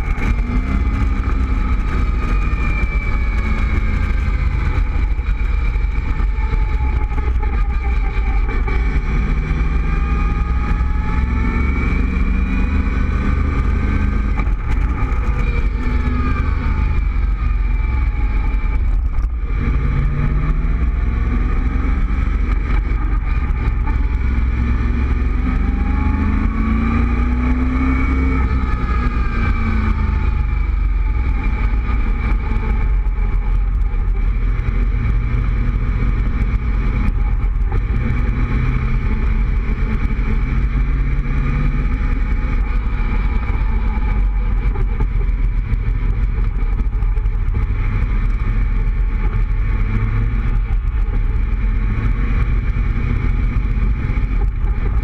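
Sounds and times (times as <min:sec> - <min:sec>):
car engine running: 0:00.0 - 0:55.0.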